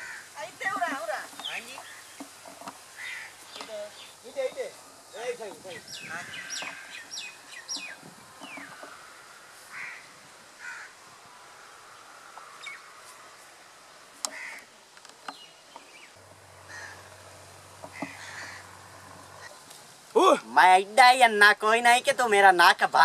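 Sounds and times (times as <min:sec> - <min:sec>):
crows cawing: 0:00.0 - 0:00.4, 0:02.9 - 0:03.6, 0:06.0 - 0:07.5, 0:08.4 - 0:11.0, 0:14.3 - 0:14.7, 0:16.6 - 0:17.2, 0:17.8 - 0:19.3
small birds chirping: 0:00.0 - 0:10.9, 0:11.8 - 0:20.2.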